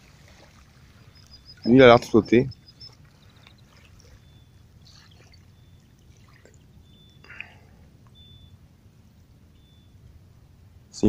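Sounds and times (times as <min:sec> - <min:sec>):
water lapping and dripping: 0:00.0 - 0:08.2
low steady rumble: 0:00.0 - 0:11.0.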